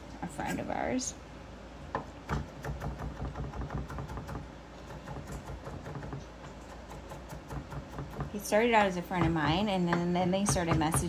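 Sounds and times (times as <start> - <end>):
knife tapping on wooden board: 9.2 - 11.0.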